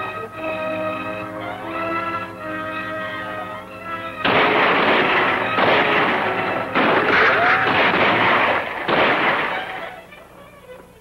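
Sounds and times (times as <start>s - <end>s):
loud echoing gunshots: 4.2s - 10.1s.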